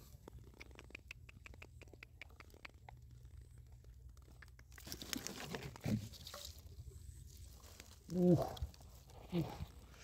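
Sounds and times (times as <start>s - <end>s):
rustle through grass and plastic: 3.2s - 10.0s
hands rummaging through dry leaves: 4.8s - 9.4s.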